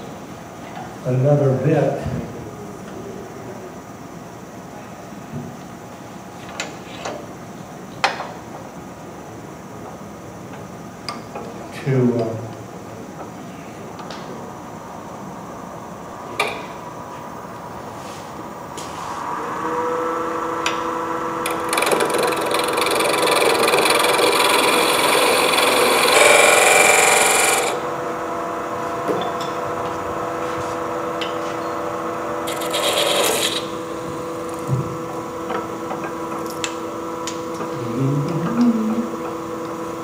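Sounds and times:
wood lathe humming: 0:19.8 - 0:28.3, 0:32.3 - 0:34.7
tool rasping on spinning wood: 0:21.5 - 0:27.8, 0:32.4 - 0:33.7.

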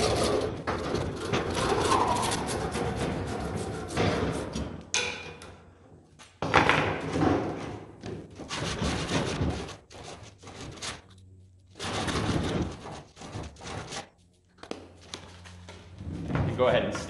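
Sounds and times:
pipe scraping on sandpaper: 0:08.4 - 0:14.3.

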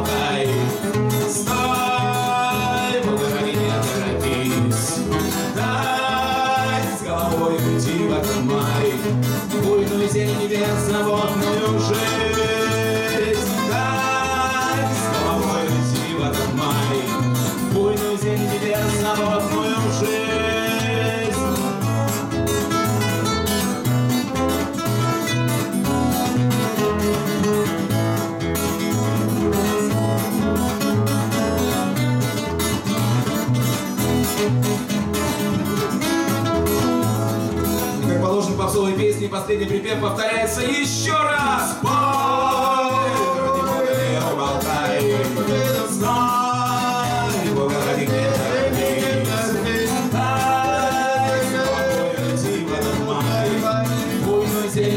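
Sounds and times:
man singing: 0:00.0 - 0:22.2, 0:37.9 - 0:54.9
acoustic guitars strummed: 0:00.0 - 0:54.9.

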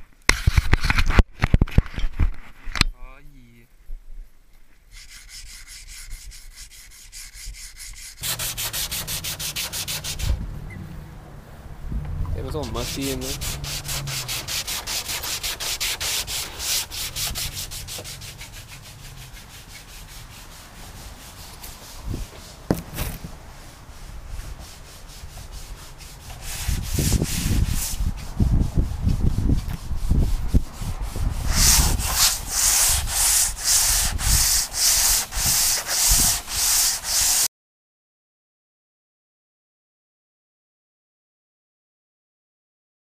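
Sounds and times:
sandpaper rasping on metal panel: 0:04.9 - 0:10.4, 0:12.4 - 0:22.6, 0:23.6 - 0:37.5.

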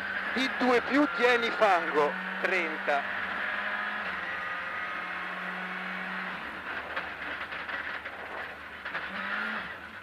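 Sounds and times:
rally car engine running hard: 0:00.0 - 0:10.0
engine clicks and crackles: 0:06.4 - 0:10.0.

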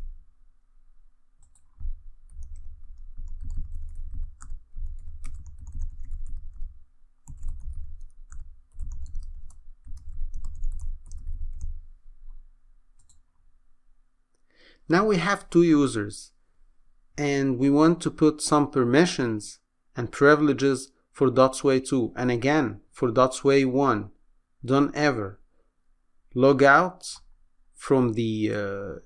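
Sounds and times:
faint hum: 0:00.0 - 0:23.2
keyboard typing: 0:01.4 - 0:12.4, 0:13.0 - 0:13.3.

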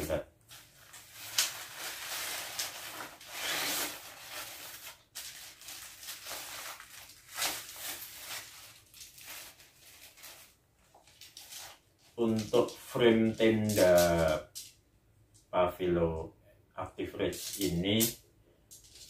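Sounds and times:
plastic wrapping crinkling: 0:00.5 - 0:14.5.

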